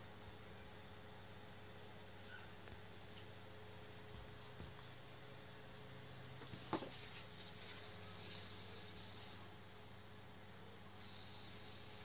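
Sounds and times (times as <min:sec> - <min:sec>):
scratchy rubbing on microphone: 0:06.9 - 0:09.4, 0:11.0 - 0:12.0.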